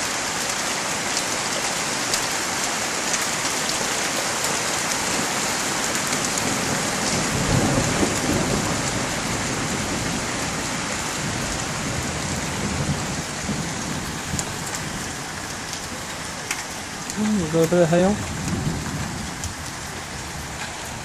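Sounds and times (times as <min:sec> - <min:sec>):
heavy rain hissing: 0:00.0 - 0:21.0
rolling thunder: 0:06.4 - 0:16.0, 0:18.1 - 0:21.0.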